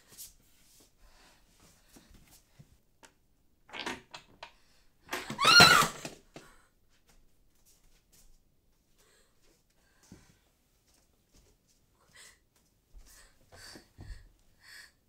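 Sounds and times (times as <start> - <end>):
woman screaming: 5.3 - 6.0.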